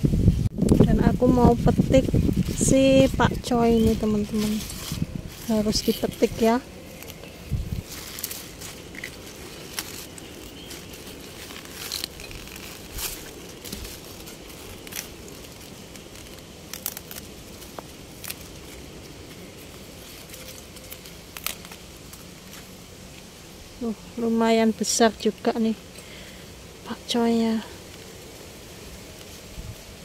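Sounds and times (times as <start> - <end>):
leaves snapping and rustling: 0.6 - 23.4.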